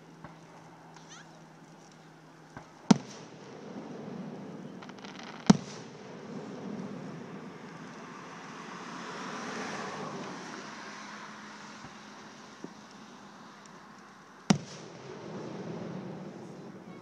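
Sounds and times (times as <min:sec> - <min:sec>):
firework rushing noise: 0:02.5 - 0:17.0
loud firework bang: 0:02.6 - 0:08.6, 0:14.5 - 0:17.0.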